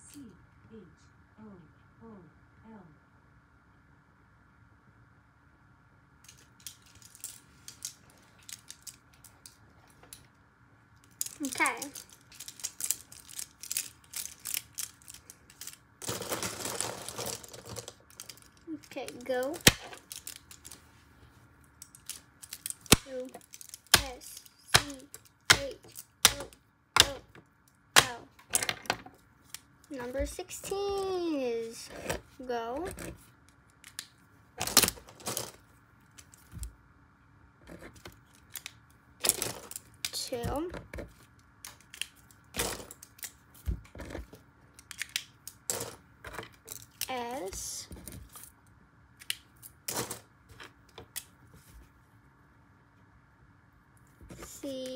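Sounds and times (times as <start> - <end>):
pens clattering: 6.3 - 10.2, 11.0 - 20.8, 21.7 - 27.2, 34.6 - 35.6, 37.7 - 41.1, 41.7 - 48.4.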